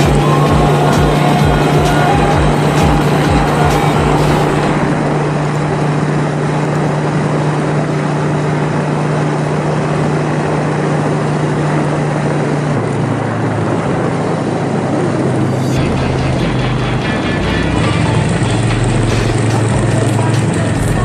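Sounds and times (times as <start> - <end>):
wind rushing over microphone: 0.0 - 16.1
motorbike engine running: 0.0 - 21.0.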